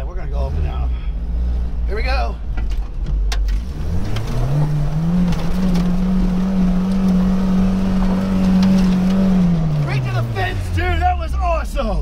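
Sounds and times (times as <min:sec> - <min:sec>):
truck engine revving: 0:03.5 - 0:11.2.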